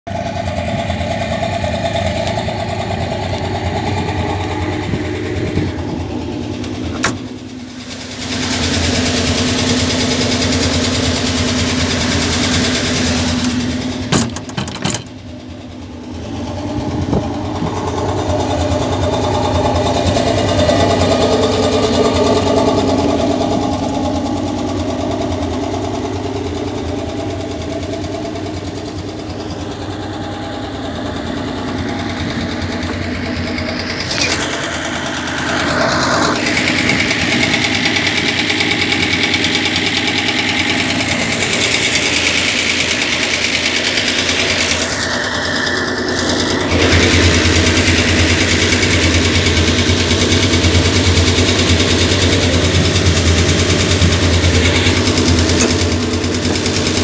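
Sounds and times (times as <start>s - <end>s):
vehicle engine idling: 0.0s - 57.0s.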